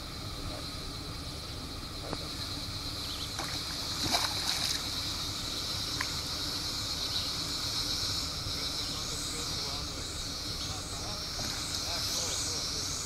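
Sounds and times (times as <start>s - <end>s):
high hiss: 0.0s - 13.0s
steady low rumble: 0.0s - 13.0s
fish splashing in water: 3.3s - 5.2s.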